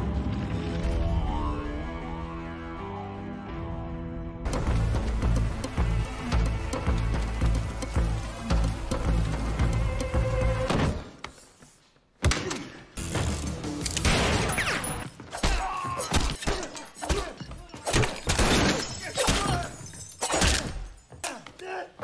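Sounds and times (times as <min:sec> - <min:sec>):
glass breaking: 0:17.9 - 0:21.0.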